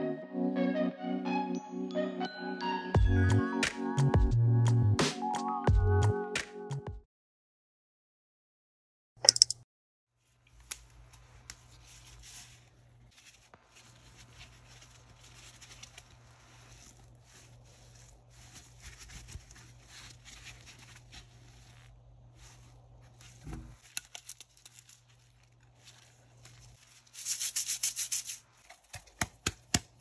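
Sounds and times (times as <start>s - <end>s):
sharp clicks: 9.2s - 9.6s
foam and glove rustling: 10.3s - 30.0s.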